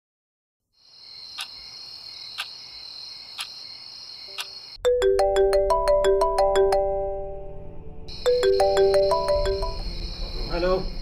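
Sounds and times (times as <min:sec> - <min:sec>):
crickets chirping: 0:00.7 - 0:04.8, 0:07.7 - 0:11.0
alarm clock ticking: 0:08.1 - 0:10.0.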